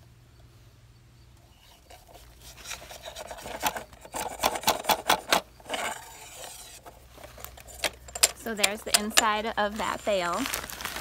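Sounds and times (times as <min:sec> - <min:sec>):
dry hay scraping against metal: 0:01.5 - 0:04.3, 0:05.6 - 0:11.0.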